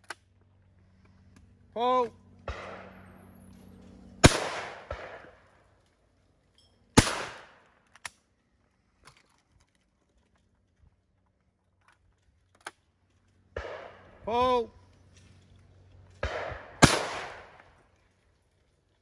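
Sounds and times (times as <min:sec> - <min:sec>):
shotgun shots with echo: 0:02.4 - 0:03.1, 0:04.2 - 0:05.4, 0:07.0 - 0:07.6, 0:13.6 - 0:14.2, 0:16.2 - 0:17.6.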